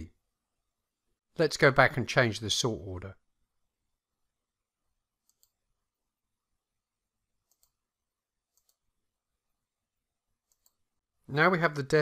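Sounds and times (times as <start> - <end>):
computer mouse clicking: 5.2 - 5.6, 7.4 - 7.8, 8.5 - 8.8, 10.4 - 10.8.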